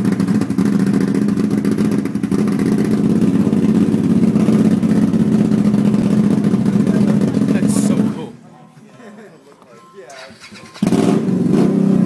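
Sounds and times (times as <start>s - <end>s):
motorcycle engine running: 0.0s - 8.2s.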